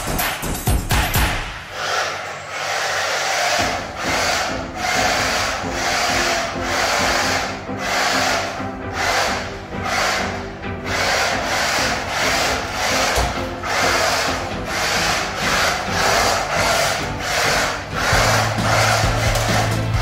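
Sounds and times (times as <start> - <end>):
music with swishing beat: 0.0 - 1.8, 3.6 - 20.0
low bass notes: 14.4 - 20.0.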